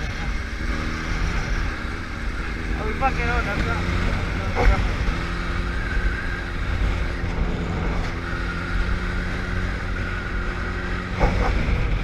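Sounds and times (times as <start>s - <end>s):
motorcycle engine cruising: 0.0s - 12.0s
wind rush on microphone: 3.4s - 12.0s.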